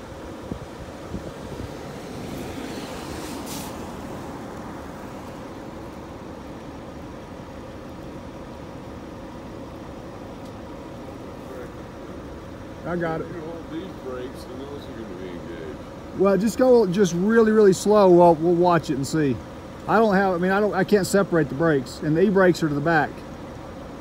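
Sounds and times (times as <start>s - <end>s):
truck engine running: 0.0s - 24.0s
short hiss: 2.7s - 4.2s.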